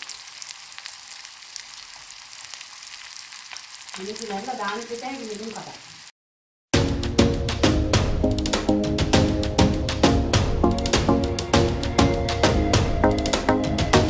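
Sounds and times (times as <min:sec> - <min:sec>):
shallots sizzling in hot oil: 0:00.0 - 0:06.1.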